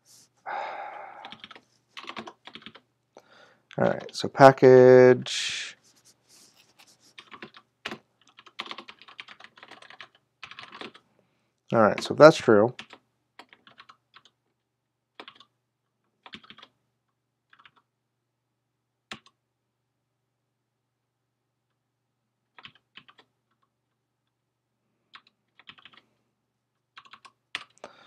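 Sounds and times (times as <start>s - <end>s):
keyboard typing: 1.2s - 2.9s, 7.1s - 11.0s, 12.8s - 14.4s, 15.1s - 15.6s, 16.2s - 16.8s, 17.5s - 17.9s, 19.1s - 19.4s, 22.5s - 23.7s, 25.1s - 26.0s, 26.8s - 27.8s.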